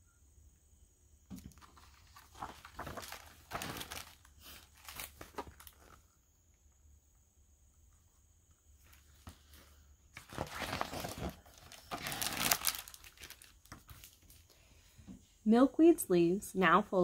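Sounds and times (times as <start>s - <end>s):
paper pages rustling: 1.4s - 6.0s, 8.8s - 14.5s.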